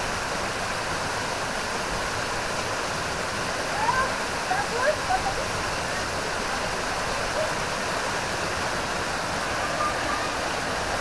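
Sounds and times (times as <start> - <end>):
waterfall rushing over rocks: 0.0 - 11.0.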